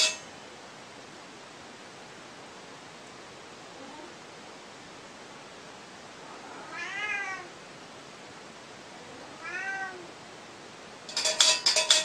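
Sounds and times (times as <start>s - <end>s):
cat meowing: 6.4s - 7.5s, 9.2s - 10.1s.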